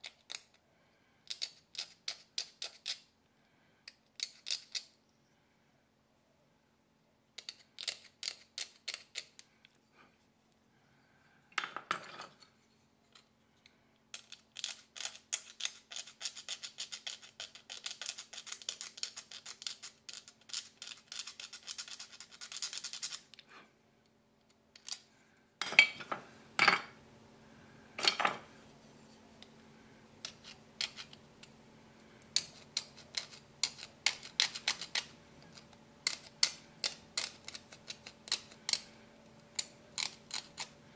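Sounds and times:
knife shaving and scraping nut: 0.0s - 3.1s, 3.8s - 5.1s, 7.4s - 9.8s, 12.0s - 23.6s, 30.2s - 40.9s.

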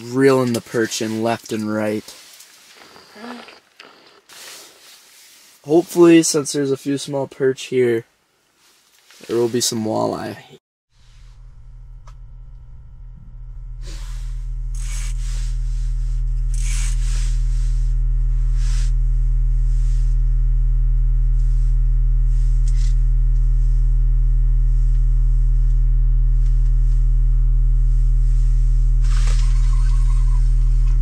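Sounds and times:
rustling: 0.6s - 5.6s
low hum of pure tones: 10.9s - 31.0s.

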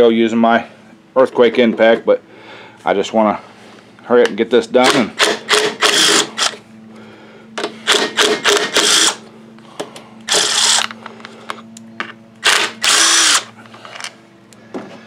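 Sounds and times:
impact wrench hammering: 4.8s - 6.6s, 7.6s - 9.2s.

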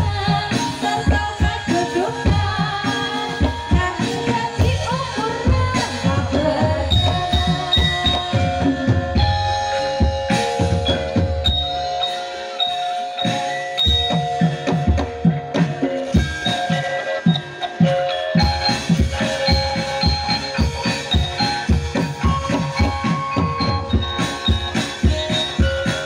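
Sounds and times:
ringing bronze metallophones: 0.0s - 26.0s.

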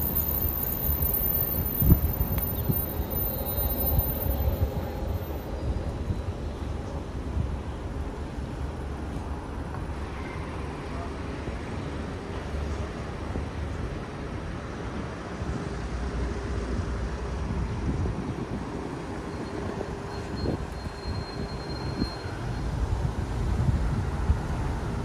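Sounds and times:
faint high tone: 0.0s - 6.6s
passing car traffic: 0.0s - 25.0s.

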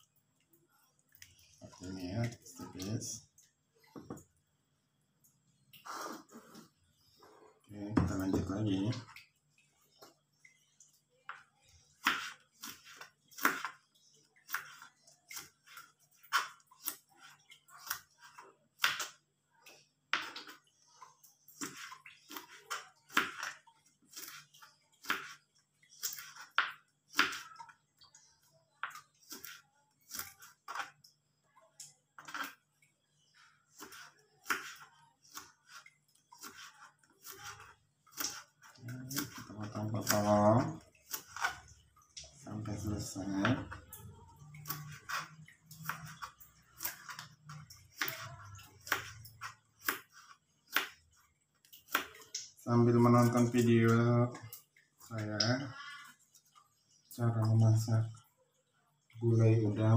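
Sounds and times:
knife chopping on cutting board: 33.8s - 35.4s.

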